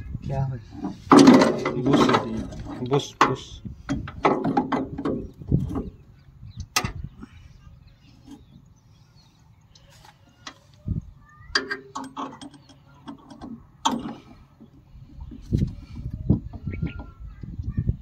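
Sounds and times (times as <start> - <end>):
metal parts clicking and knocking: 11.5 - 15.8.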